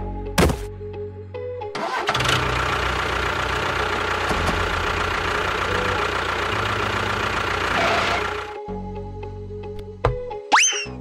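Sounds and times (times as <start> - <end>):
tractor engine running: 1.8 - 8.6.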